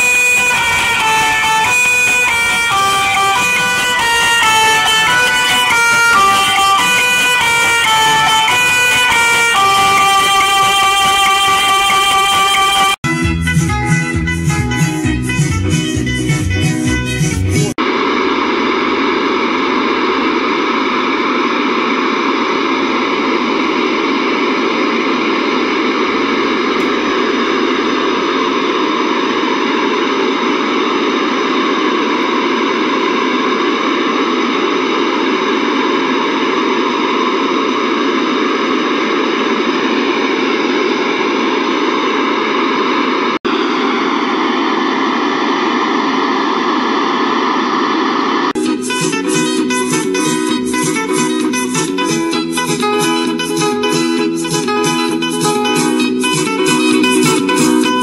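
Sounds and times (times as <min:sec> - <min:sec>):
hiss-like test noise from speakers: 0:13.1 - 0:58.0.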